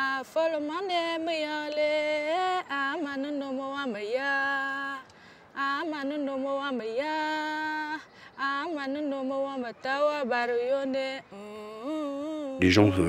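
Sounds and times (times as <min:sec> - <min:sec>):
person singing: 0:12.6 - 0:13.0.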